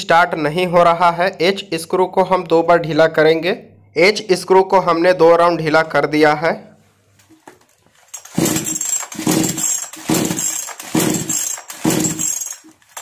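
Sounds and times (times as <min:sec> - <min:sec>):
chainsaw recoil starter pulls: 0:08.0 - 0:13.0.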